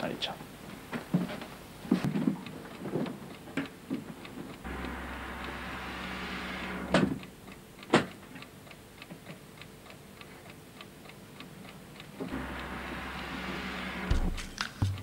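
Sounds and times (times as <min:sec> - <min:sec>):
steady hum: 0:04.6 - 0:07.9, 0:08.5 - 0:15.0.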